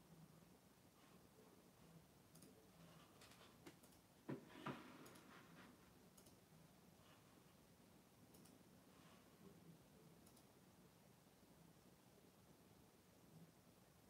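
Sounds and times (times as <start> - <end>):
faint clicks: 2.3 - 2.6, 3.2 - 4.1, 6.1 - 6.4, 8.3 - 8.6, 10.2 - 10.6.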